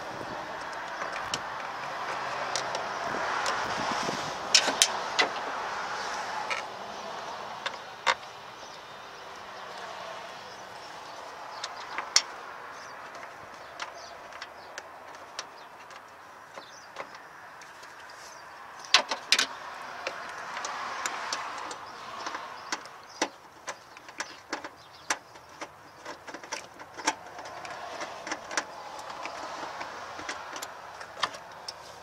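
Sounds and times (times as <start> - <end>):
plastic connectors clicking: 18.8 - 31.9.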